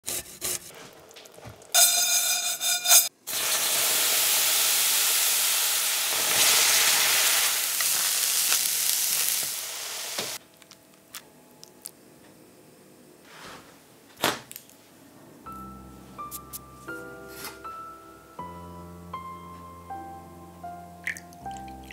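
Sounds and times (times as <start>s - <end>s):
pitched ringing tone: 1.8s - 3.1s
rice sizzling in a frying pan: 3.2s - 10.4s.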